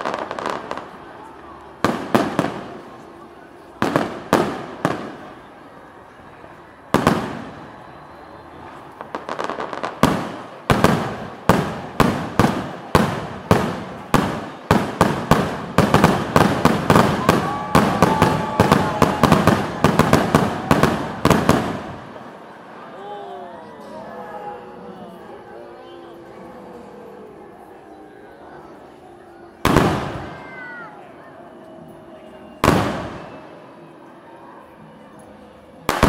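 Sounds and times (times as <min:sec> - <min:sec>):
fireworks bursting: 0:00.0 - 0:05.5, 0:06.9 - 0:22.4, 0:29.6 - 0:30.8, 0:32.6 - 0:33.5.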